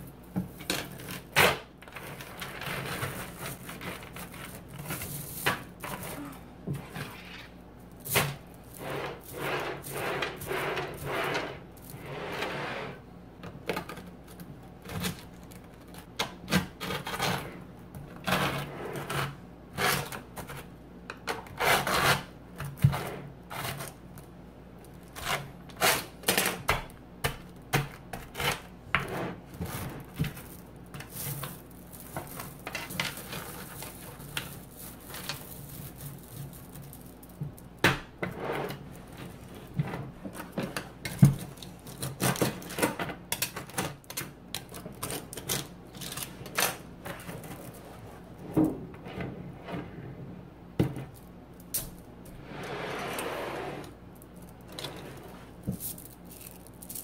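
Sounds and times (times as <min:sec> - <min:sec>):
magnet balls clicking and rattling: 0:30.3 - 0:37.8, 0:54.1 - 0:57.0.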